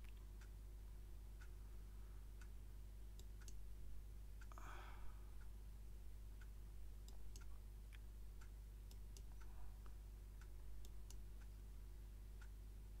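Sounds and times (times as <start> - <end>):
low electrical hum: 0.0 - 13.0
computer mouse clicks: 3.2 - 3.6, 7.0 - 7.5.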